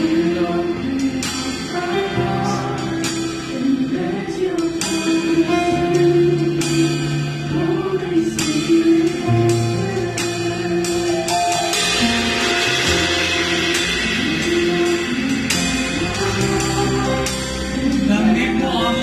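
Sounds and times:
live band playing: 0.0 - 19.0
sustained bass notes: 0.0 - 19.0.

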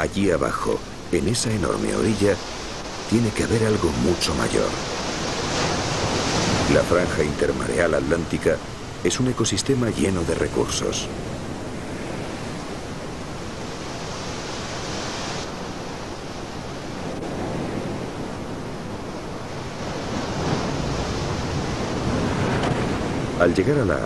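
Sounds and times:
surf breaking on shore: 0.0 - 24.0.

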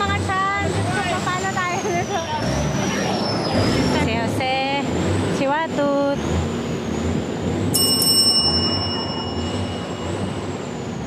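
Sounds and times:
rushing background noise: 0.0 - 11.0
bicycle bell ringing: 7.7 - 10.8.

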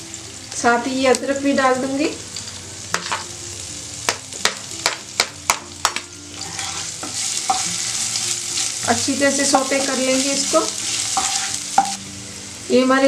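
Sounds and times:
food sizzling in hot oil: 0.0 - 13.0
spoon clinking on pan: 11.2 - 12.0.

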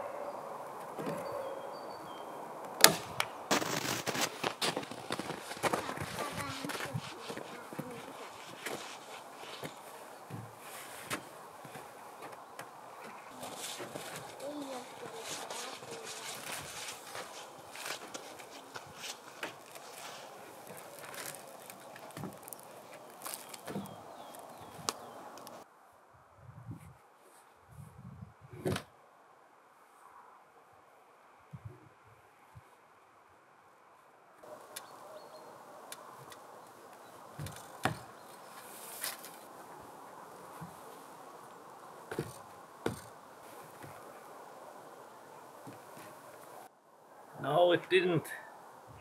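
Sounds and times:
log knocking and scraping on wood: 2.8 - 25.6, 37.3 - 39.4, 42.0 - 44.1, 45.6 - 46.2.

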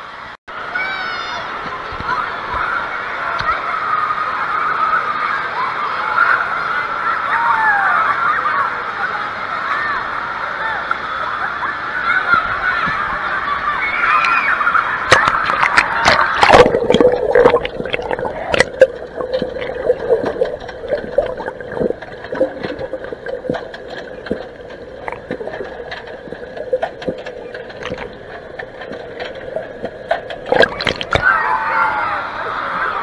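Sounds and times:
many voices: 0.6 - 33.0
splashing: 14.1 - 31.4
muffled underwater hum: 15.0 - 31.3
camera plunging into water: 15.1 - 24.4, 27.8 - 28.1, 30.4 - 31.2.

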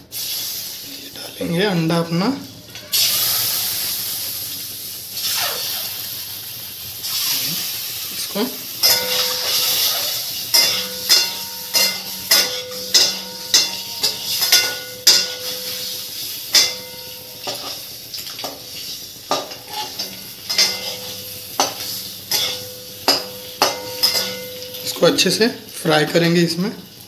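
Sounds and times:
eggs sizzling in hot oil: 0.0 - 27.0
pan ringing faintly: 8.8 - 18.6, 19.3 - 25.5
metal tongs clinking against pan: 8.8 - 25.2.

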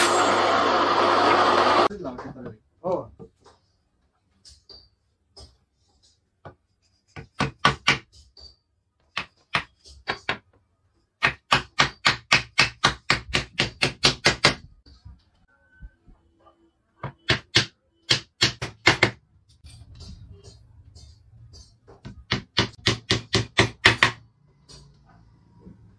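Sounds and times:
hammer tapping on wooden board: 21.9 - 24.2.

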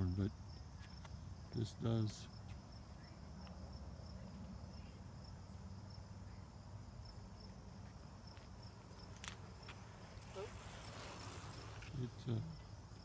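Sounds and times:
cricket chirping: 0.0 - 13.0.

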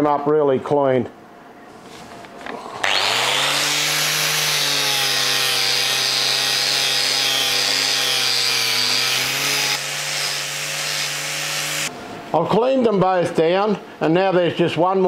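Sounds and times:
angle grinder scouring metal: 2.6 - 11.9.

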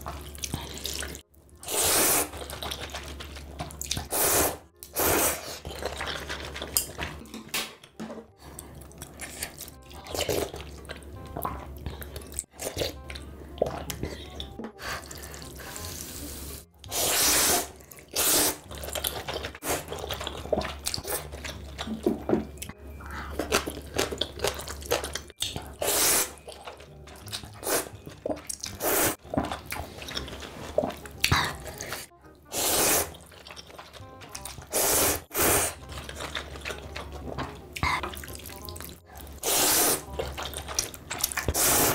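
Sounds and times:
person slurping noodles: 0.7 - 2.8, 4.0 - 6.4, 15.0 - 18.7, 25.7 - 26.4, 28.8 - 29.2, 29.9 - 33.2, 34.6 - 36.6, 39.4 - 40.1, 41.4 - 41.9
wet mouth sounds: 16.8 - 22.7, 23.3 - 41.9.

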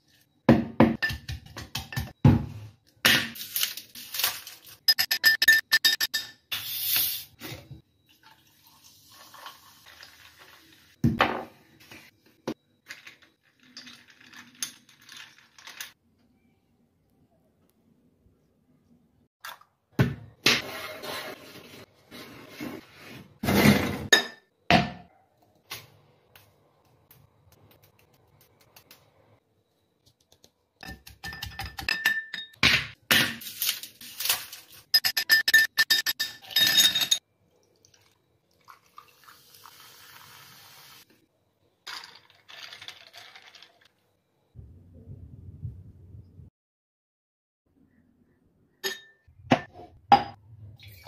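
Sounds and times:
glass knocks and clinks: 24.1 - 25.0, 30.8 - 33.0, 35.0 - 37.2
spoon stirring against glass: 30.8 - 32.5.

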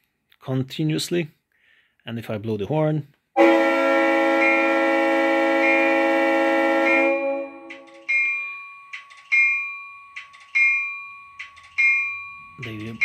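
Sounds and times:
model locomotive air horn: 3.4 - 8.1
locomotive bell ringing: 4.3 - 13.0.

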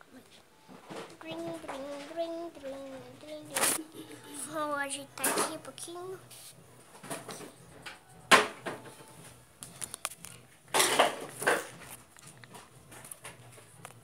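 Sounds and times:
pencils rattling clatter: 0.9 - 4.2.

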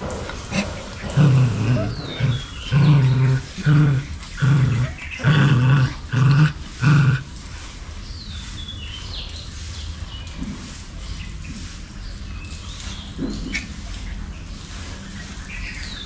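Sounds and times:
dog growling: 0.0 - 7.5.

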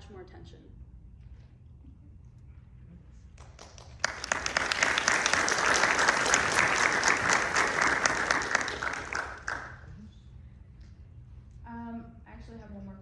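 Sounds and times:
audience applauding: 3.4 - 9.9.

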